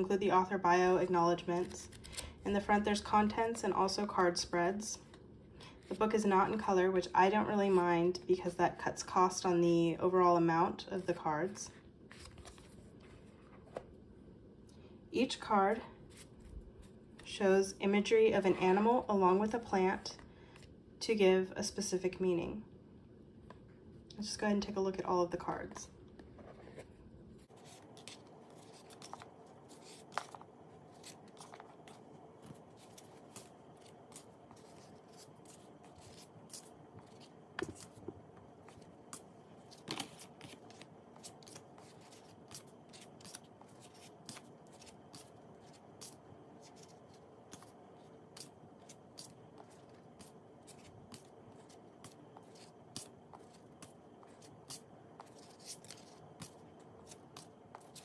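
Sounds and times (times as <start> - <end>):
cards sliding and flipping: 1.5 - 2.3, 12.1 - 13.8, 26.4 - 58.0.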